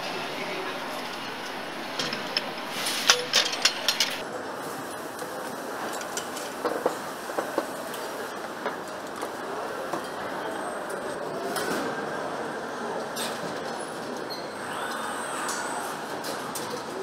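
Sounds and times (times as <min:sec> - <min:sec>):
factory floor noise: 0:00.0 - 0:17.0
metal parts clinking: 0:01.1 - 0:04.2.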